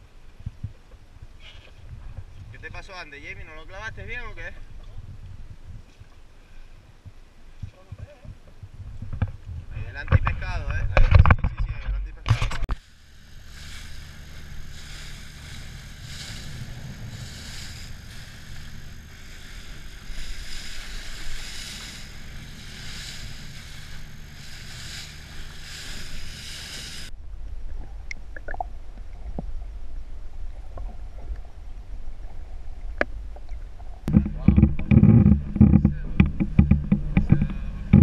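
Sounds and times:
wind on microphone: 0:00.0 - 0:38.0
boat engine drone: 0:12.7 - 0:27.1, 0:34.0 - 0:38.0
muffled underwater sound: 0:34.1 - 0:38.0.

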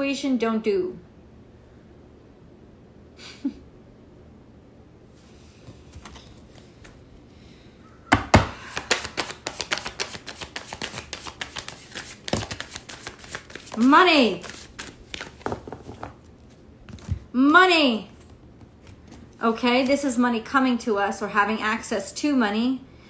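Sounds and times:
cards being shuffled: 0:08.6 - 0:17.3.

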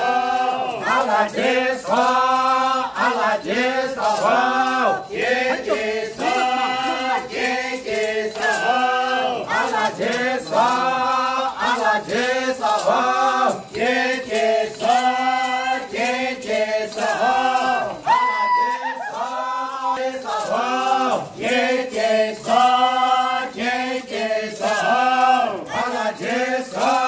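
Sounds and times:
group chanting unaccompanied: 0:00.0 - 0:27.0.

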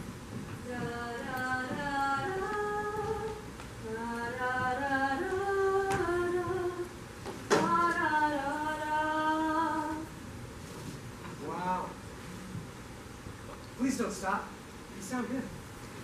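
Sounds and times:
woman singing slow melody: 0:00.6 - 0:10.2.

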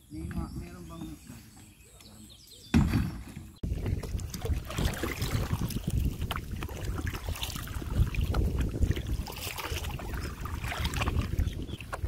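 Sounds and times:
lake water splashing: 0:03.6 - 0:12.0
wind buffeting microphone: 0:03.6 - 0:12.0.

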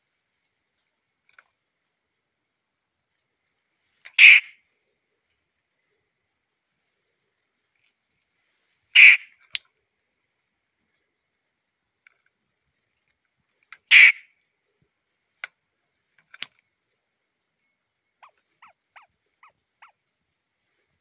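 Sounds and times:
bird harsh call: 0:04.2 - 0:04.6, 0:09.0 - 0:09.4, 0:13.9 - 0:14.3.

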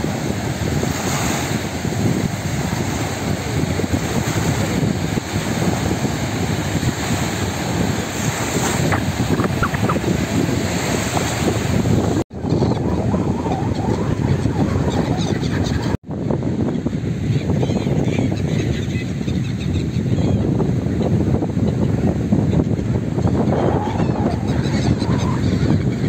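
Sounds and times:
small waves breaking on sand: 0:00.0 - 0:12.2
wind buffeting microphone: 0:00.0 - 0:26.0.

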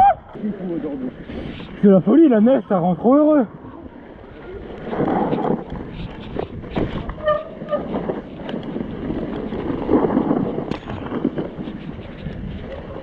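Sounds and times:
tyres running through snow: 0:00.0 - 0:13.0
wind on microphone: 0:03.6 - 0:13.0
bike rattling and knocking: 0:04.8 - 0:13.0.

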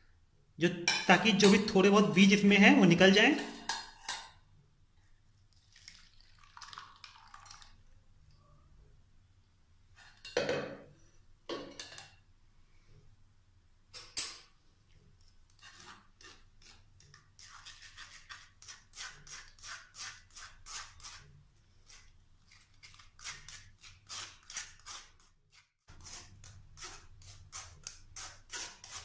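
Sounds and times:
spoon scraping metal mesh strainer: 0:15.5 - 0:29.0.

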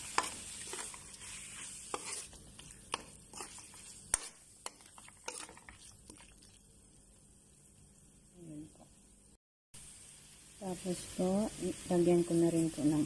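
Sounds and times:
spatula scraping and tapping pan: 0:00.0 - 0:06.0
faint sizzle: 0:00.0 - 0:13.0.

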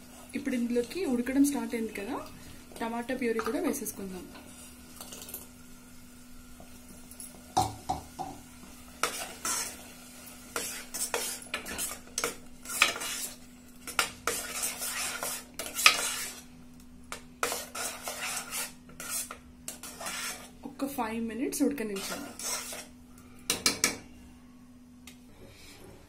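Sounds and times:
knock on pot: 0:07.6 - 0:08.4
spoon scraping a pot: 0:09.0 - 0:09.8, 0:10.5 - 0:16.5, 0:17.1 - 0:20.6, 0:21.9 - 0:23.0.

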